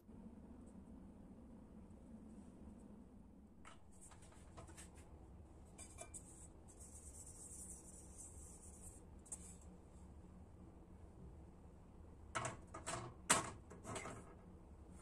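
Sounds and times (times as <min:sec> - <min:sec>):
paper towel rubbing a wok: 0:05.8 - 0:09.6.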